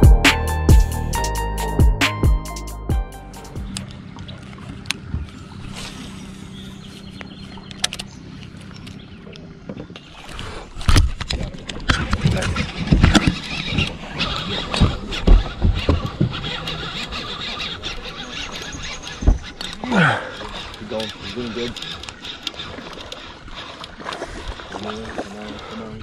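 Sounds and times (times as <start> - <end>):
knocks and rubbing on rod handle: 14.6 - 19.8.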